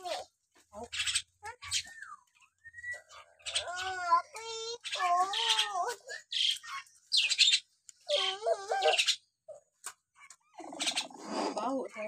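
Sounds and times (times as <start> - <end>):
myna warbling calls: 0.1 - 9.6, 10.2 - 12.0.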